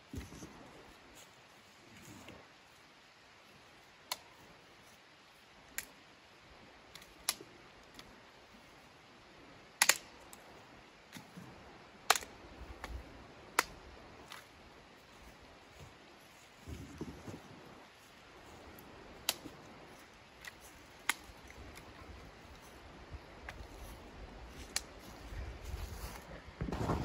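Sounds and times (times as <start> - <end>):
faint steady hiss: 0.0 - 27.0
sharp clicks and snaps: 6.9 - 8.1, 9.8 - 10.4, 12.1 - 13.0, 19.2 - 19.6.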